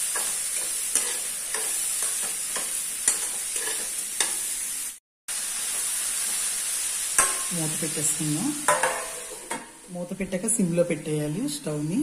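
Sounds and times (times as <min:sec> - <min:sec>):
spatula scraping and tapping pan: 0:00.0 - 0:04.4, 0:07.2 - 0:07.5, 0:08.7 - 0:09.8
vegetables sizzling in oil: 0:00.0 - 0:12.0.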